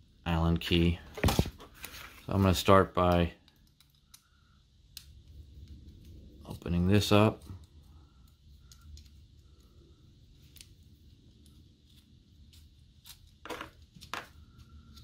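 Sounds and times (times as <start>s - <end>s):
small clicks and handling noises: 3.0s - 6.2s, 7.4s - 15.0s.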